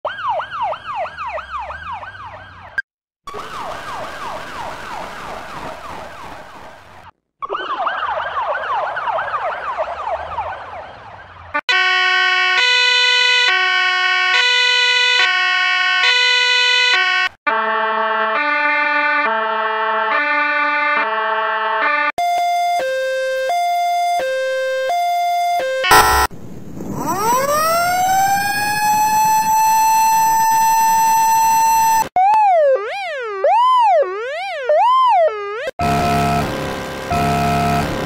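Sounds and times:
ambulance siren yelping: 0:00.0 - 0:06.4, 0:07.4 - 0:26.3, 0:26.9 - 0:38.0
two-note hi-lo siren: 0:11.6 - 0:26.3, 0:26.9 - 0:38.0.

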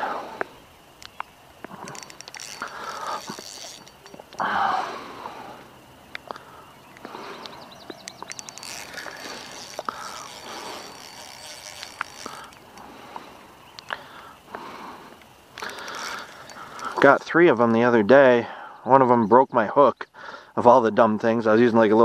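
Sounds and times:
fishing reel clicking and whirring: 0:00.9 - 0:18.0.

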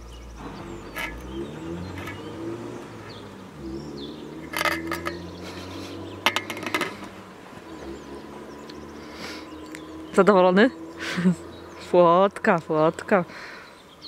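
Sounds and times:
low vehicle engine drone: 0:00.0 - 0:14.0
fishing tackle clicking and clinking: 0:00.9 - 0:01.3, 0:01.9 - 0:02.3, 0:04.4 - 0:07.2.

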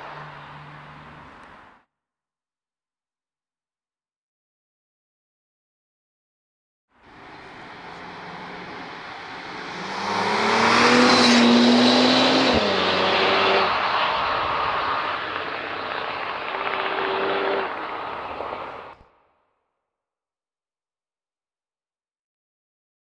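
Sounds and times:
car engine revving: 0:07.1 - 0:19.0.

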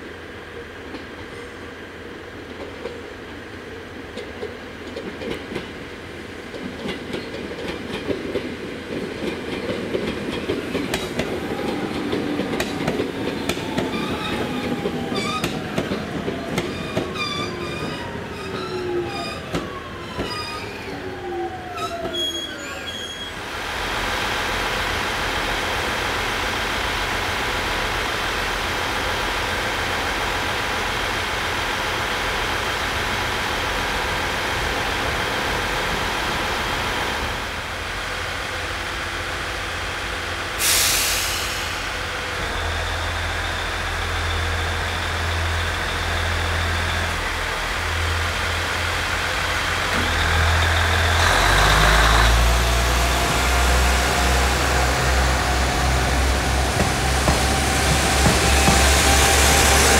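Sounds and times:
train equipment humming: 0:00.1 - 0:40.6, 0:41.2 - 0:59.9
train pulling away: 0:06.8 - 0:59.9
brake air hiss: 0:40.5 - 0:42.1.

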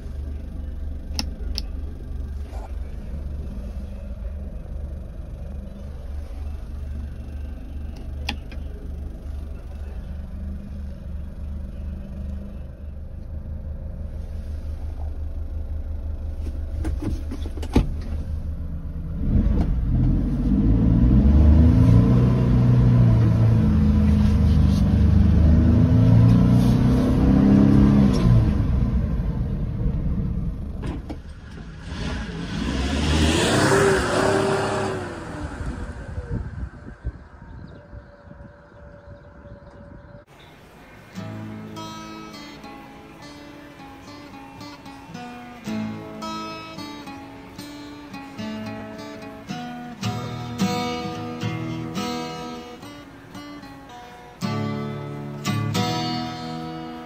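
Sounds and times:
truck engine idling: 0:00.0 - 0:19.2
truck driving off revving: 0:19.0 - 0:38.4, 0:39.3 - 0:57.0
truck driving past: 0:19.8 - 0:57.0.

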